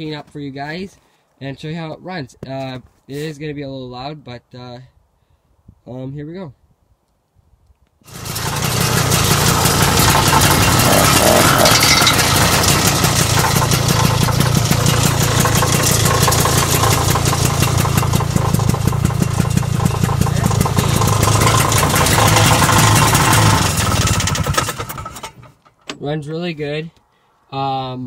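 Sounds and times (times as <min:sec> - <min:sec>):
snowmobile engine idling: 0:08.1 - 0:25.0.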